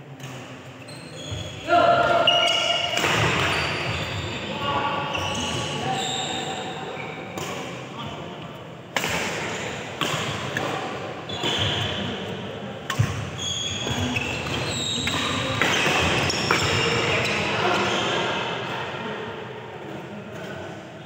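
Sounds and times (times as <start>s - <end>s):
shoes squeaking on court: 0.8s - 7.5s, 11.3s - 12.0s, 12.9s - 18.1s
racket hitting shuttlecock: 2.0s - 3.8s, 7.3s - 7.9s, 8.9s - 12.2s, 12.8s - 16.8s.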